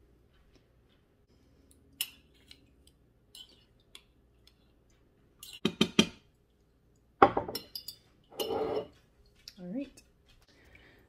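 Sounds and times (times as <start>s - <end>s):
metal spoon scraping glass jar: 7.7s - 9.0s.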